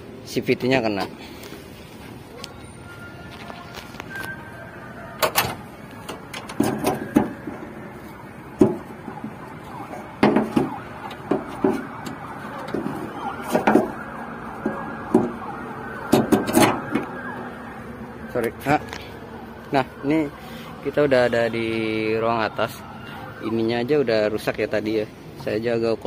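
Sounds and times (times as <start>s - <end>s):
knocks and clunks: 5.2s - 7.8s, 8.5s - 9.5s, 10.2s - 14.0s, 14.6s - 17.1s.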